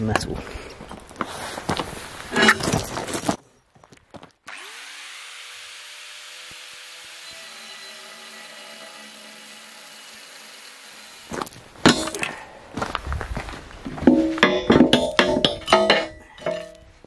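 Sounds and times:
angle grinder cutting steel: 4.5 - 12.2.

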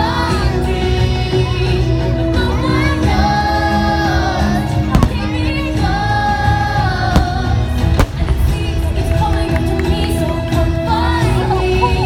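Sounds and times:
music with long sung notes: 0.0 - 12.0
firework shells bursting: 4.9 - 5.5, 7.2 - 9.9.

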